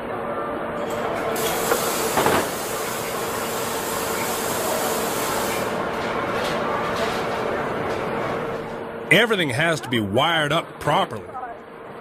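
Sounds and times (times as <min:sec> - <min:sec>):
machinery air hiss: 0:01.4 - 0:05.8.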